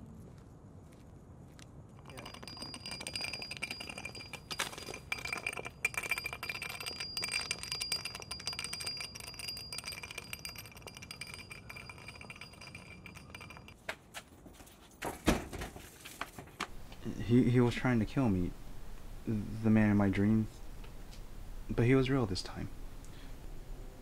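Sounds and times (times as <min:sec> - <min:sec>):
high metallic ring: 0:02.0 - 0:13.8.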